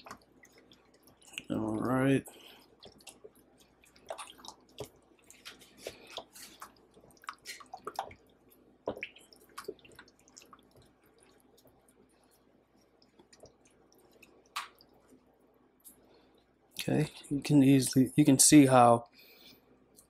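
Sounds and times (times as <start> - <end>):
wet squelches in marinade: 2.2 - 15.2.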